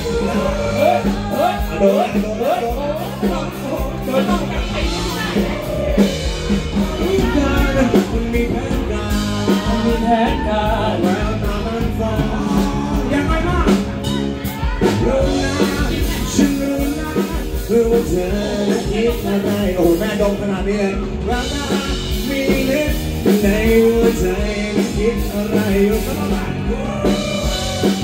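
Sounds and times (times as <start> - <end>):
electric guitar: 0.0 - 28.0
live pop band through speakers: 0.0 - 28.0
person singing: 0.0 - 28.0.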